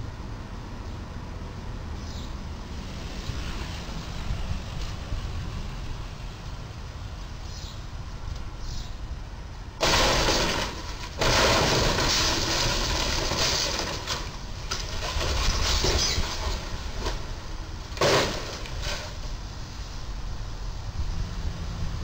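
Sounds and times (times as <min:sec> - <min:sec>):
loud crunching crash: 0:09.8 - 0:19.4
wreckage scraping and clattering: 0:09.8 - 0:19.4.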